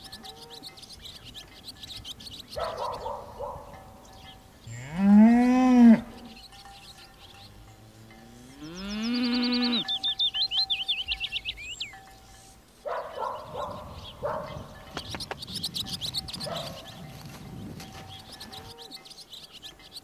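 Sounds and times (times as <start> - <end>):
small birds chirping: 0.0 - 20.0
cow mooing: 4.6 - 6.4, 7.6 - 10.0.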